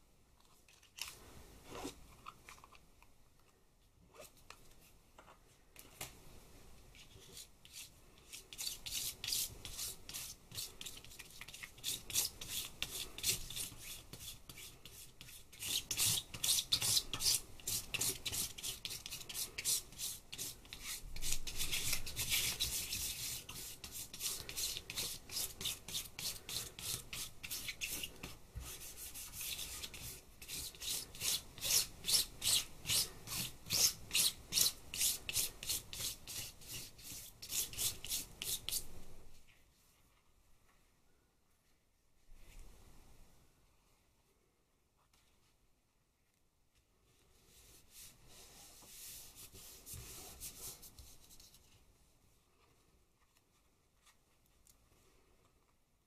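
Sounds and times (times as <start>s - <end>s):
palette knife scraping paint: 7.1s - 38.9s.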